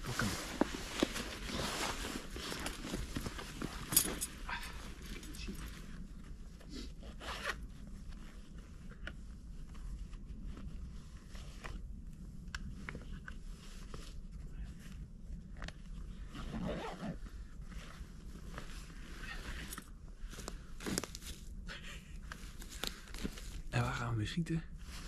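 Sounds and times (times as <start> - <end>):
rustling of gear: 0.0 - 23.8
zipper pulled open: 6.8 - 7.8, 15.6 - 18.0.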